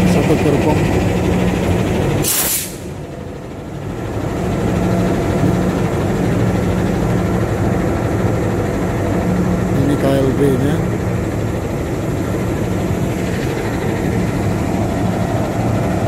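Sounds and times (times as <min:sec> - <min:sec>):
diesel locomotive idling: 0:00.0 - 0:16.0
compressed air hissing: 0:02.2 - 0:02.9.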